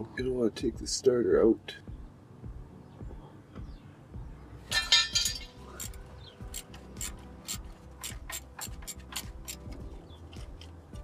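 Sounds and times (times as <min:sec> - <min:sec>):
quiet background music: 0:00.0 - 0:11.0
metallic clatter: 0:04.7 - 0:06.0
sharp metallic clicks: 0:05.8 - 0:10.8.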